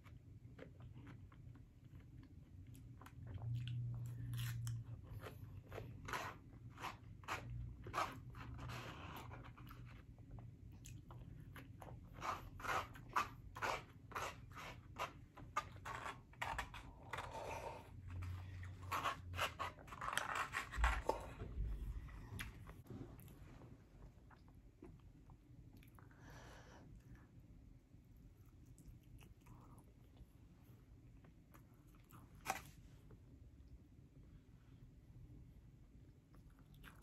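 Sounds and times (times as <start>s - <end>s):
crunchy salad chewing: 36.3s - 37.0s.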